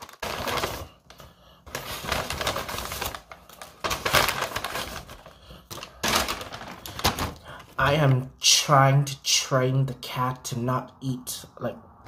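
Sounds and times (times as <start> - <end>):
paper bag rustling and crinkling: 0.0 - 8.3.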